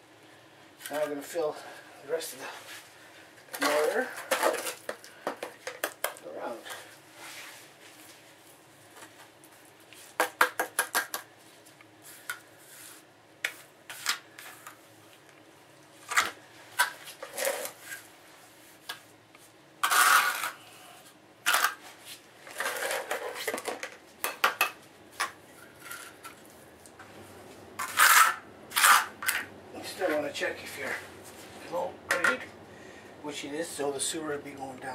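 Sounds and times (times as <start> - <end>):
trowel scraping bucket and mortar: 19.8 - 20.6, 27.8 - 29.5.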